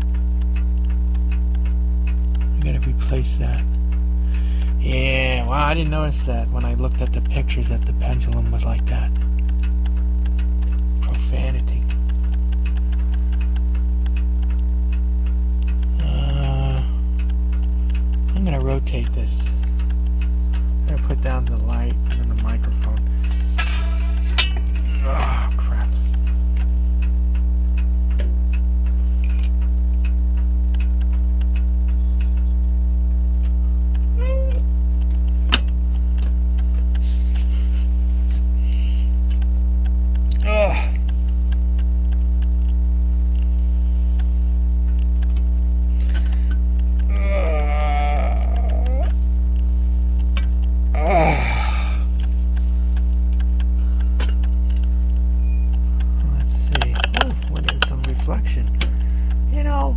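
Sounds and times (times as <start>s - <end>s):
clock ticking faintly: 0.0s - 59.9s
faint scattered clicks: 0.0s - 59.9s
loud mains hum: 0.0s - 59.9s
person groaning: 16.0s - 17.0s, 25.0s - 25.6s, 40.3s - 41.0s, 47.1s - 49.2s, 50.9s - 52.1s.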